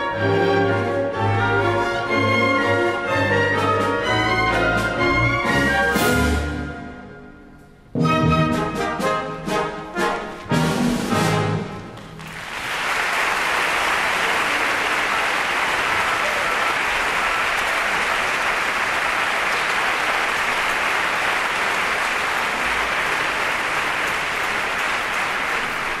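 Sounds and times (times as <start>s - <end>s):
audience applauding: 12.0s - 26.0s.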